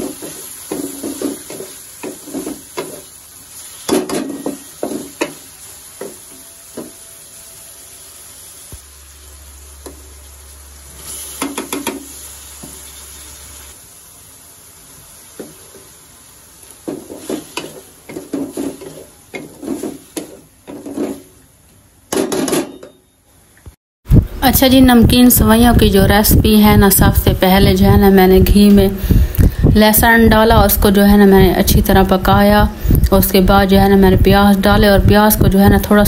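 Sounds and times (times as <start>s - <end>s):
wooden spatula scraping a pan: 0.0s - 7.0s, 16.8s - 21.4s
low sizzle of food frying: 0.0s - 22.0s.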